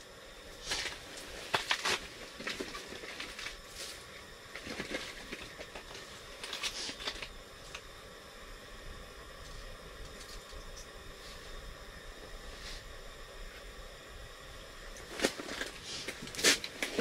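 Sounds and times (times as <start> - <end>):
rustling and crinkling: 0.6 - 7.8, 15.0 - 17.0.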